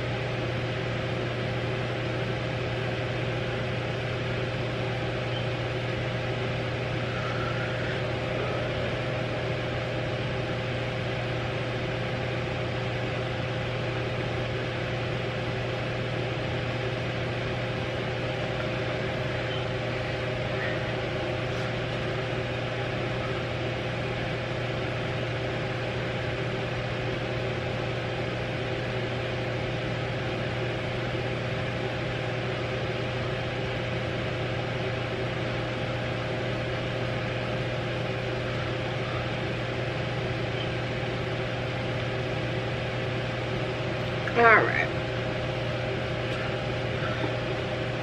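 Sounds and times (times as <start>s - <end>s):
electric fan running: 0.0s - 48.0s.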